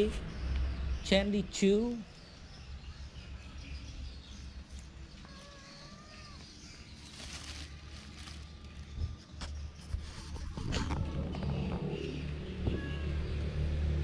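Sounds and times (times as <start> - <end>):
faint animal call: 5.2 - 6.9.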